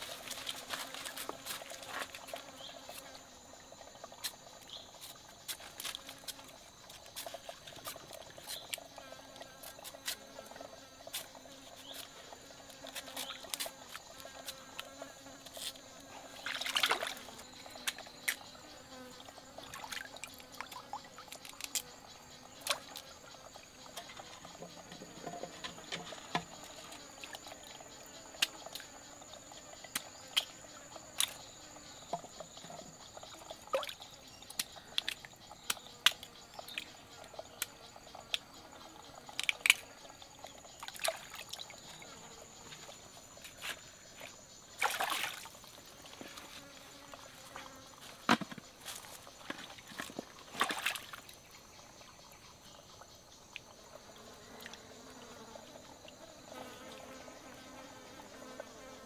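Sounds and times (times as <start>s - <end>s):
insects droning: 0.0s - 59.0s
hands splashing in stream water: 16.4s - 17.2s, 44.8s - 45.5s, 49.7s - 51.2s.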